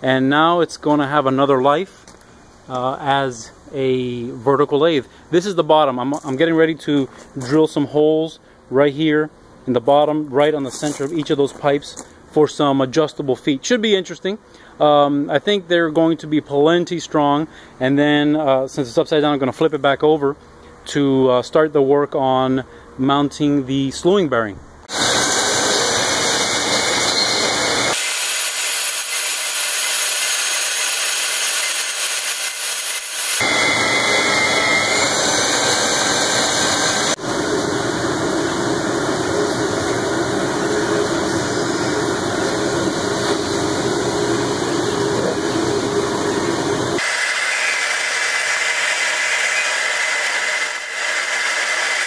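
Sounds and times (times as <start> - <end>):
electric drill boring steel: 24.9 - 37.2, 47.0 - 52.0.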